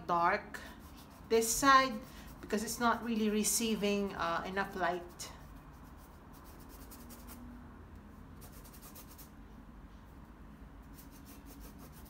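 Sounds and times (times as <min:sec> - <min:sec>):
paintbrush strokes on paper: 0:00.7 - 0:03.1, 0:10.8 - 0:12.0.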